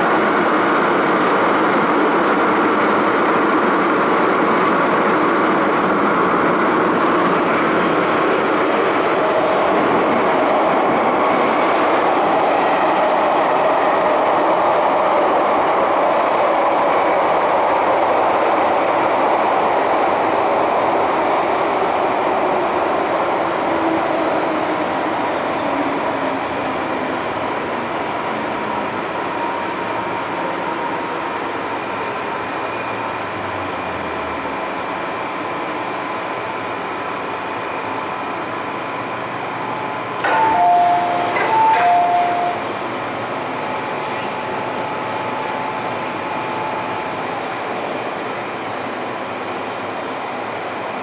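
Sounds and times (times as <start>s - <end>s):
two-note electronic chime: 40.3s - 42.6s.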